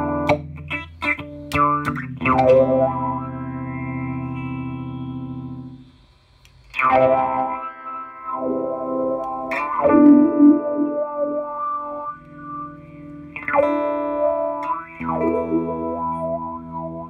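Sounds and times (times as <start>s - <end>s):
filtered electric guitar chords: 0.0s - 17.0s.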